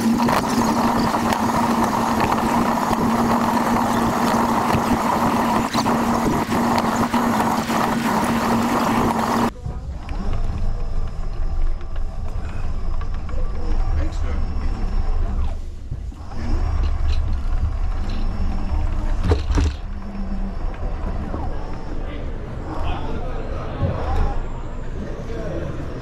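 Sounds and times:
wheels rolling over pavement: 0.0 - 22.0
small electric motors whining: 0.0 - 23.2
low rumble rolling on carpet: 9.5 - 22.3.

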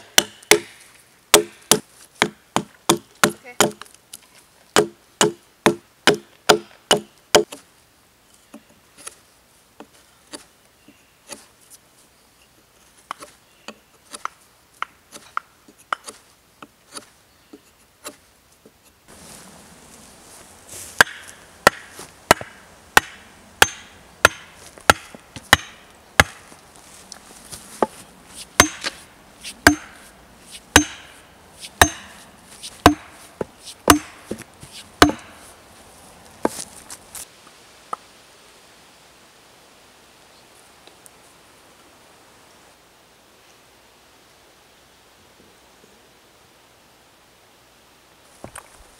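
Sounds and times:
hatchet chopping wood: 0.0 - 3.9, 4.8 - 7.6, 21.0 - 26.5, 28.6 - 31.2, 31.8 - 32.2, 32.8 - 34.4, 35.0 - 35.4.

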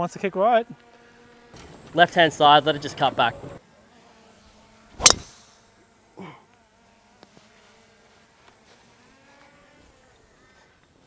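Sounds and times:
high insect drone: 0.0 - 11.0
golf iron shot strike: 5.0 - 5.6.

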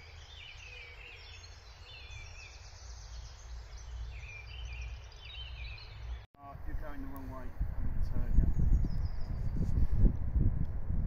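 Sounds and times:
songbirds singing: 0.0 - 6.3, 8.1 - 9.7.

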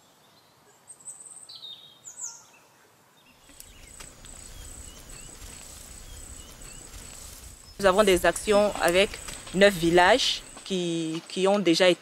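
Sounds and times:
bird calls: 1.1 - 10.8
faint chirps: 3.3 - 10.8
low background rumble: 3.5 - 10.7
high insect trill: 3.5 - 10.9.

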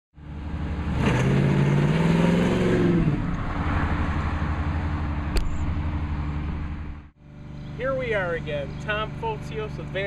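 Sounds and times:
car engine accelerating: 0.2 - 7.9.

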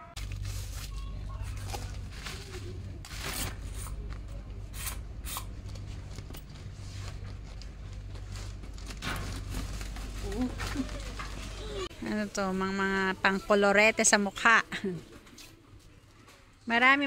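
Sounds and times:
low interior hum: 0.0 - 15.0
umbrella rustling and clicking: 5.6 - 11.9.

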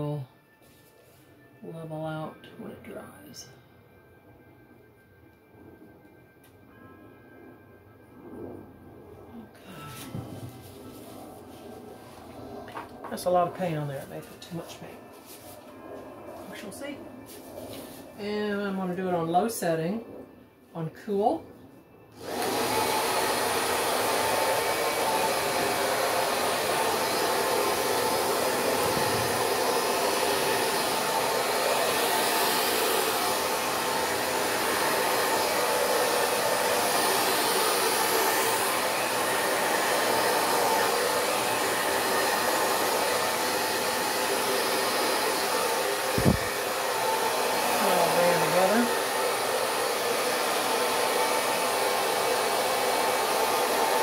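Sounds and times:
hair dryer running: 9.6 - 16.6, 22.2 - 54.0.

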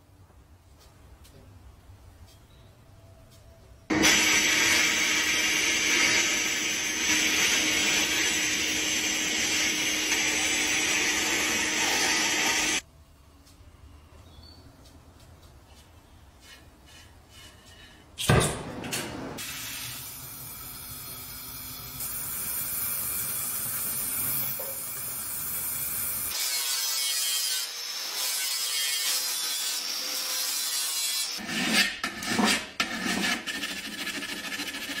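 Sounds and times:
angle grinder on steel: 3.9 - 12.8, 23.7 - 31.8
sandblasting gun hissing: 4.0 - 12.8, 19.4 - 26.4
hand file scraping steel: 15.8 - 18.2, 26.3 - 35.0.

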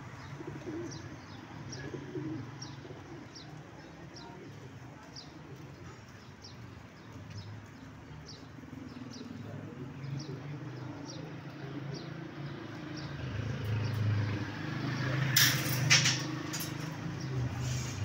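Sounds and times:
pigeons cooing: 0.0 - 4.6, 8.4 - 18.0.

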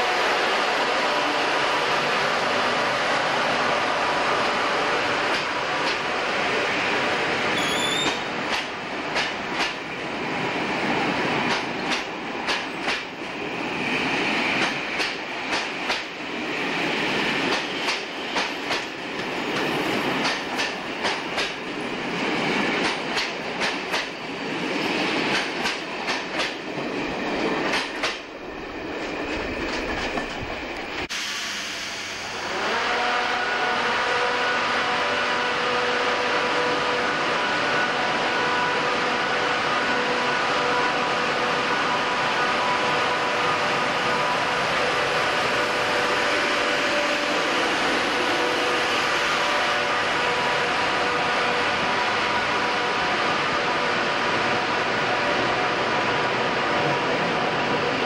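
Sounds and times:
electric locomotive humming: 0.0 - 58.0
train wheels clicking over rail joints: 5.3 - 6.1, 7.6 - 9.8, 11.4 - 13.2, 14.5 - 16.2, 17.4 - 21.8, 22.7 - 24.2, 25.0 - 26.7, 27.6 - 28.3.

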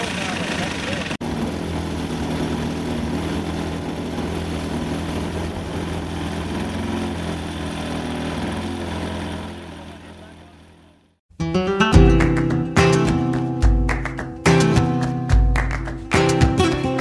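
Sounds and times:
model plane engine idling: 0.0 - 11.2.

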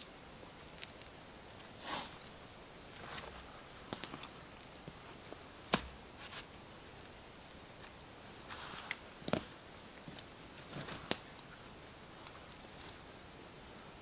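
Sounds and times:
campfire crackling: 0.0 - 14.0
short breathy hiss: 1.8 - 2.3.

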